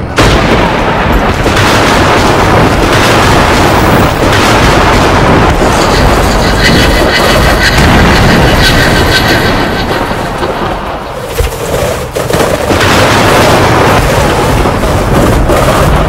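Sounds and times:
cartoon rumbling booming noise: 0.0s - 11.5s, 12.2s - 16.0s.

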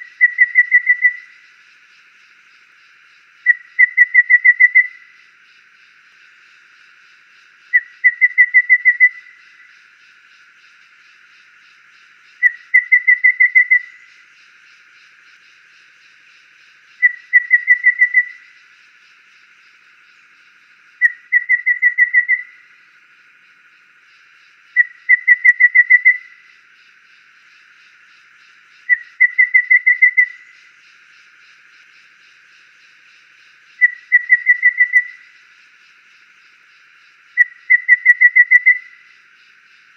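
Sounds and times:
bird singing high whistled notes: 37.4s - 39.0s.

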